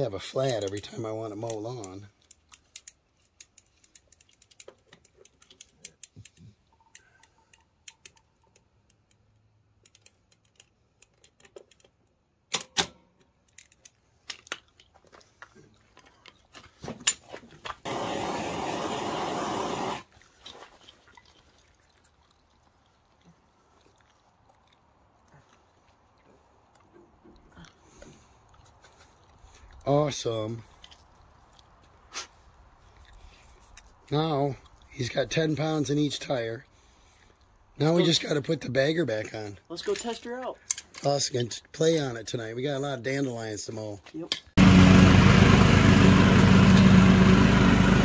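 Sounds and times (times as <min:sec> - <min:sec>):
tools clicking and knocking: 0:00.4 - 0:15.0, 0:39.8 - 0:41.1
compressed air hiss: 0:17.9 - 0:20.0.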